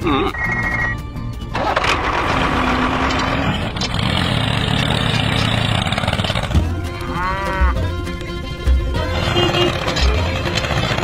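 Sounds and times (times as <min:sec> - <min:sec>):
cow mooing: 0:06.8 - 0:07.9.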